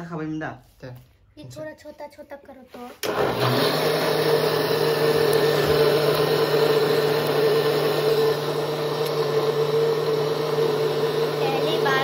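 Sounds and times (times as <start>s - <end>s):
blender running: 3.0s - 12.0s.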